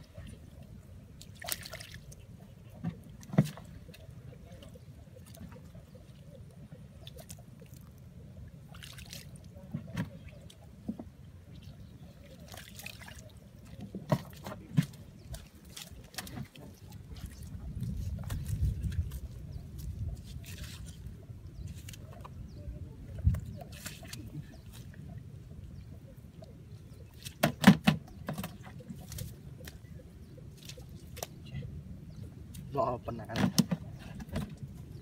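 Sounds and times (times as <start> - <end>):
fish flopping in puddle: 1.2 - 2.2, 8.6 - 9.5, 12.3 - 22.3.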